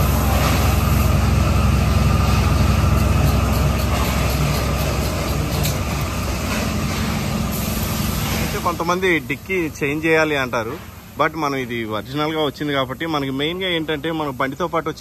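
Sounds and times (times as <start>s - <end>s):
low machine hum: 0.0s - 15.0s.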